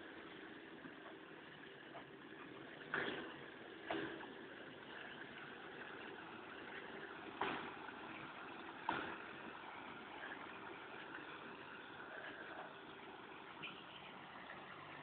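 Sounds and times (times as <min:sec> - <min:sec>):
vehicle wading through water: 0:00.0 - 0:15.0.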